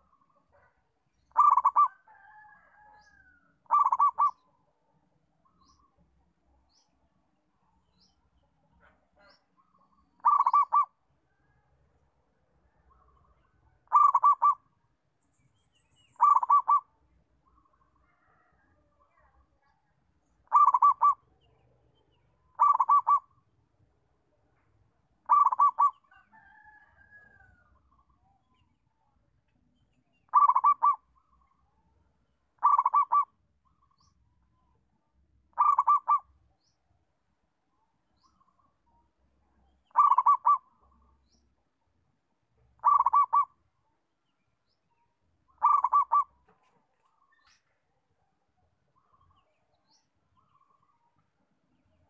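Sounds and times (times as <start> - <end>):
dove cooing: 1.3 - 2.4, 3.7 - 4.4, 10.2 - 10.9, 13.9 - 14.7, 16.2 - 16.9, 20.5 - 21.3, 22.6 - 23.3, 25.2 - 26.7, 30.3 - 31.0, 32.6 - 33.3, 35.5 - 36.3, 39.9 - 40.8, 42.8 - 43.6, 45.6 - 46.6.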